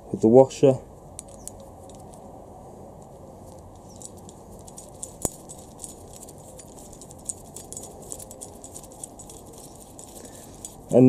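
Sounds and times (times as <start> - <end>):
metallic clicks and clinks: 1.2 - 2.2, 3.5 - 11.0.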